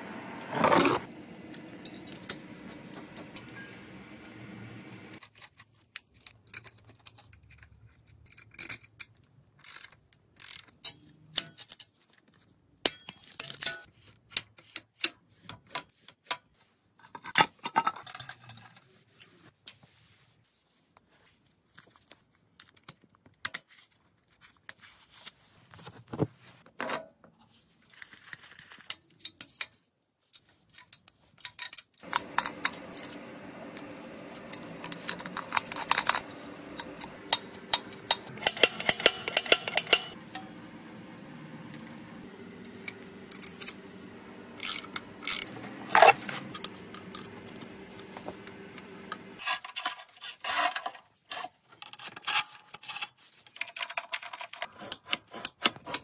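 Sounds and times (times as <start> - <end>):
metallic clicks and clinks of tools: 29.2 - 47.7.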